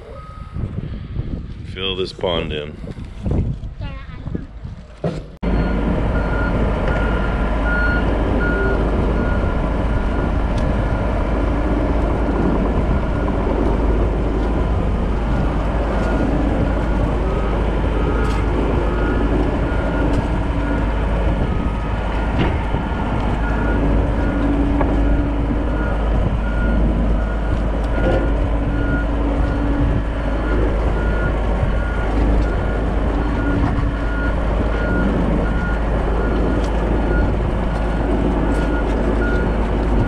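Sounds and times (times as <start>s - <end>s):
backup alarm beeping: 0.0s - 0.7s, 5.4s - 10.3s
diesel engine running under load: 0.0s - 40.0s.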